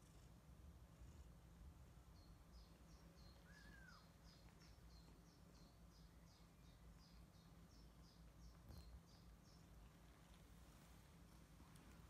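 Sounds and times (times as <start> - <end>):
low steady hum: 0.0 - 12.0
bird chirping: 2.0 - 10.0.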